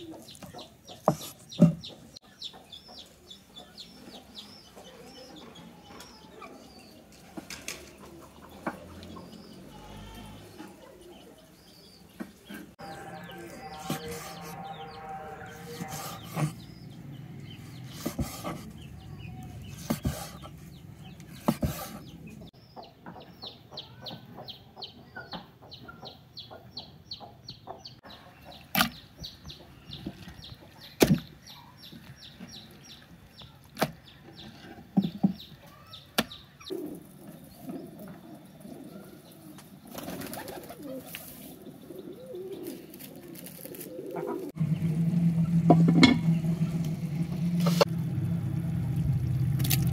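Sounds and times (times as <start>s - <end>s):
pigeons cooing: 0.0s - 2.1s, 6.2s - 22.4s, 36.6s - 47.9s
birds chirping: 0.0s - 47.9s.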